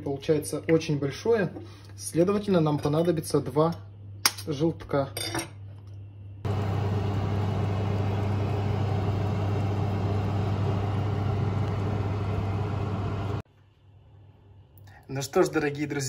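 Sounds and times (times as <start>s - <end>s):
low hum: 6.0s - 13.4s
oven fan whirring: 6.4s - 13.4s.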